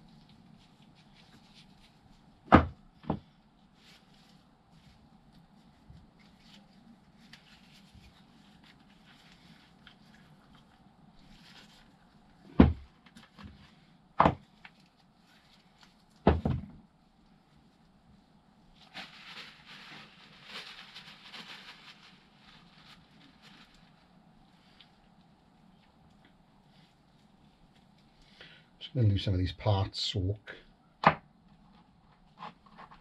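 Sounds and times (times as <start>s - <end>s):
faint handling noise: 0.0s - 28.4s.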